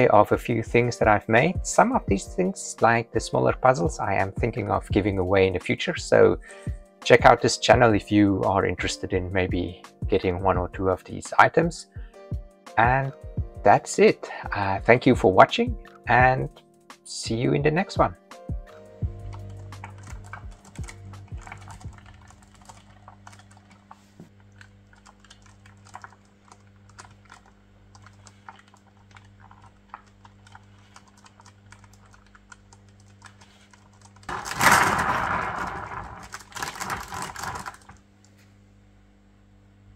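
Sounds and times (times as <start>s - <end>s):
steady low hum: 18.7s - 39.9s
gears clicking: 26.9s - 38.0s
platter rolling on bearings: 34.2s - 38.0s.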